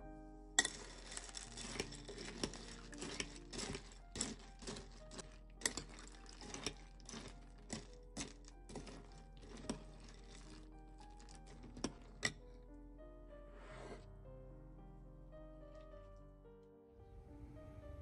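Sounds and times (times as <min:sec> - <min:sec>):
soft background music: 0:00.0 - 0:18.0
spoon clinking on glass bowl: 0:00.6 - 0:10.6
cereal rattling: 0:00.6 - 0:12.4.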